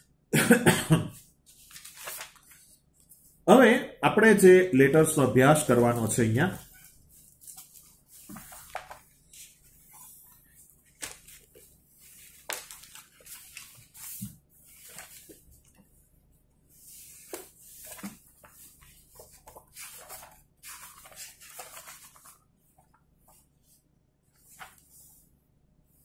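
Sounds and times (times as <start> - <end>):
paper pages turning: 1.5 - 3.3, 5.7 - 15.8, 16.8 - 23.4, 24.4 - 25.1.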